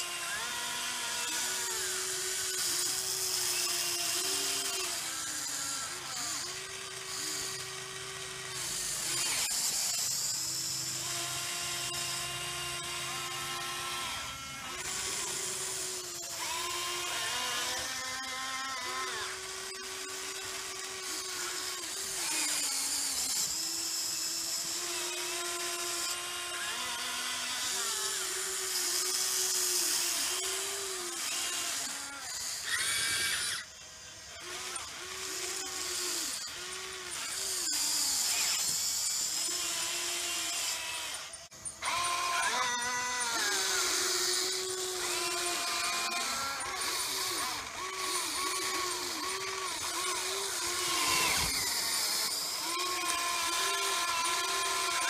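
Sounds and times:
electric motors whining: 0.0s - 55.0s.

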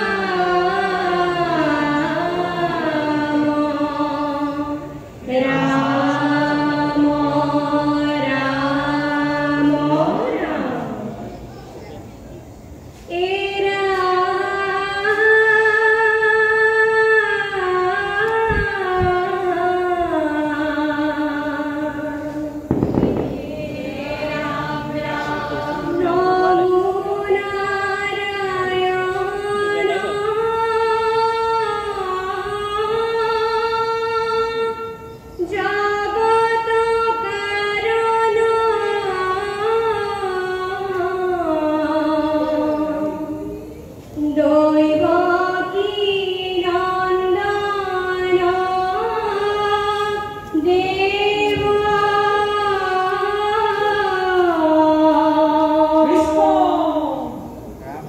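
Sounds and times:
group singing in unison: 0.0s - 11.4s, 13.1s - 34.7s, 44.4s - 57.5s.

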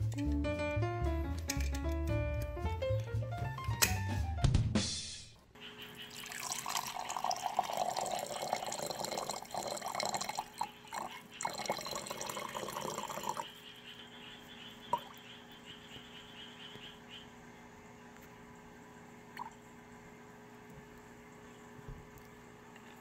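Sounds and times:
syrup trickling into glass: 6.1s - 13.4s
water pouring into glass: 6.1s - 13.4s.

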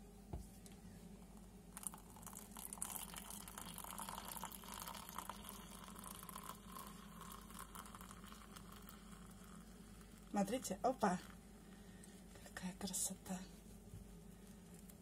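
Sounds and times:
milk pouring and splashing: 1.8s - 10.4s.

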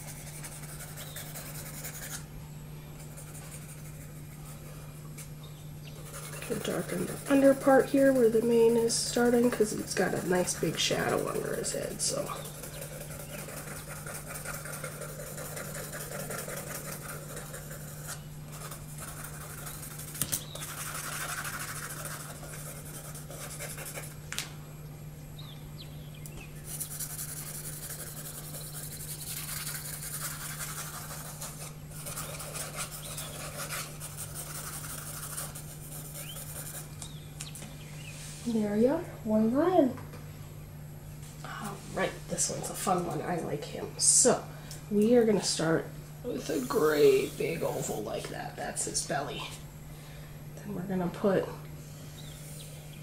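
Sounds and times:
pencil scratching on paper: 0.0s - 2.2s, 3.1s - 4.6s, 6.0s - 24.1s, 26.7s - 36.9s, 46.4s - 48.0s
steady low hum: 0.0s - 53.0s.

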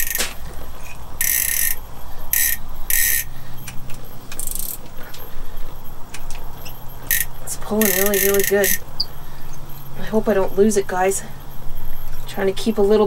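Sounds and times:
fishing reel drag buzzing: 0.0s - 3.3s, 4.4s - 4.8s, 7.0s - 8.9s.

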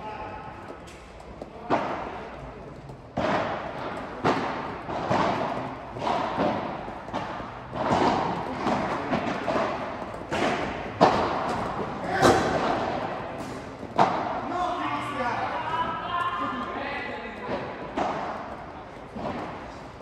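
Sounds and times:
ball bouncing off court: 0.3s - 14.5s, 15.8s - 20.0s
padel ball hit by paddles: 3.1s - 14.5s, 17.4s - 19.8s.

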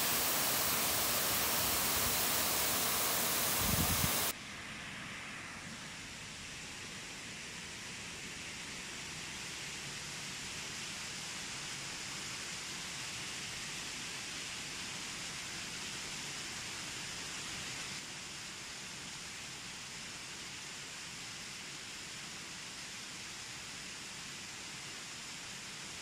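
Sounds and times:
stream rushing over rocks: 0.0s - 4.3s.

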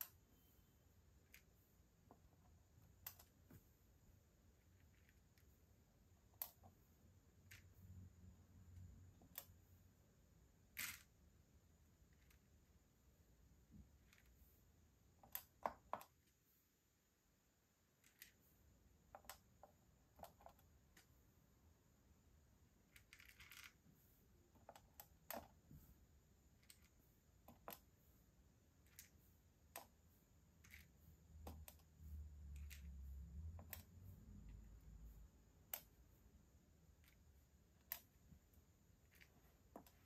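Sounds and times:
beads rattling: 10.7s - 11.2s, 22.8s - 23.8s, 32.4s - 33.8s
tweezers clicking beads: 30.6s - 36.0s.

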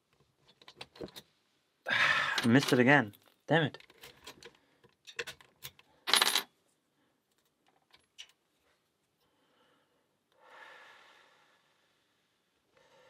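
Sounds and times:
padlock metal clicks and clinks: 2.4s - 6.5s.

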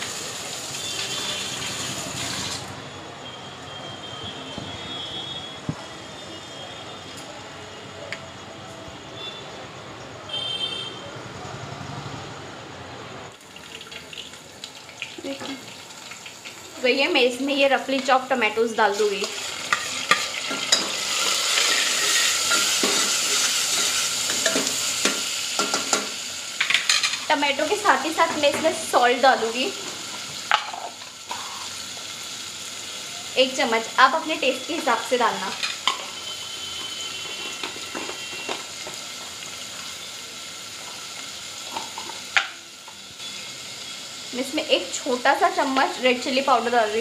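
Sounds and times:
tomatoes sizzling in hot oil: 0.0s - 2.8s, 13.3s - 47.0s.

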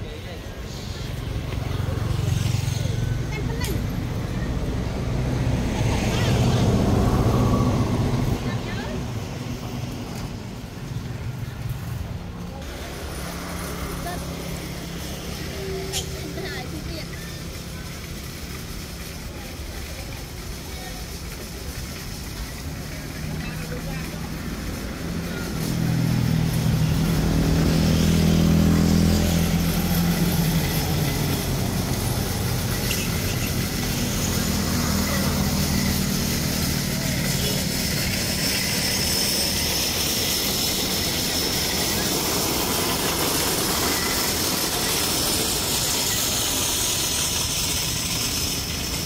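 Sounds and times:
motor engine running: 0.0s - 49.0s
steady high hiss: 12.6s - 49.0s.

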